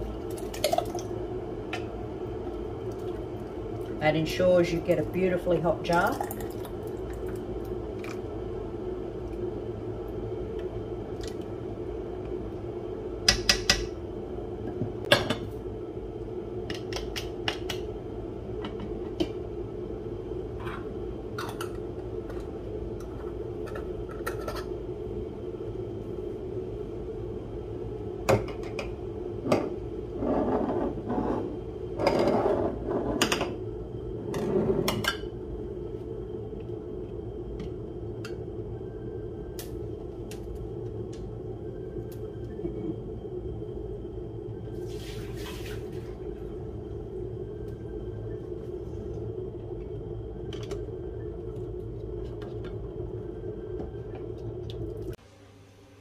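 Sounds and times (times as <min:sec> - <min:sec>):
steady low hum: 0:00.0 - 0:56.0
jars scraping on bench: 0:29.5 - 0:33.5, 0:34.3 - 0:35.2.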